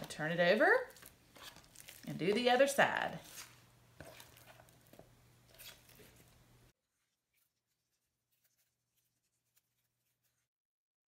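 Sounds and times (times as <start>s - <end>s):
spatula scraping plastic container: 0.0s - 6.4s.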